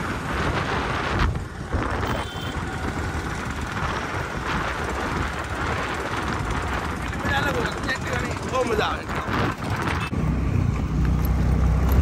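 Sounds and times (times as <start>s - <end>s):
wind buffeting microphone: 0.0s - 10.2s
road noise: 0.0s - 12.0s
scooter engine running: 1.4s - 12.0s.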